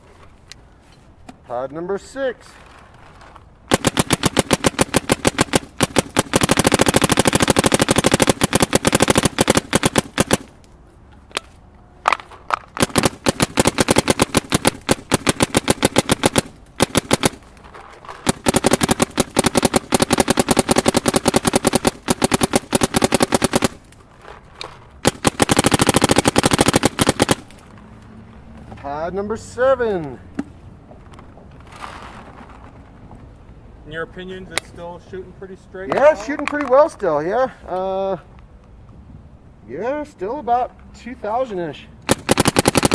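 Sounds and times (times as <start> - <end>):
paintball marker rapid firing: 3.7 - 10.6, 12.7 - 17.5, 18.2 - 23.9, 25.0 - 27.6, 42.1 - 42.9.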